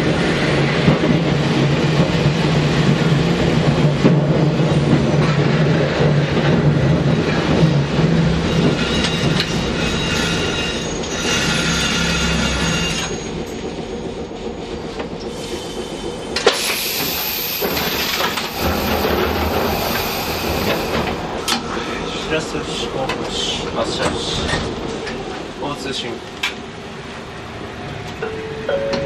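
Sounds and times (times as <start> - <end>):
tram running on track: 0.0 - 29.0
high wheel squeal: 8.4 - 14.2.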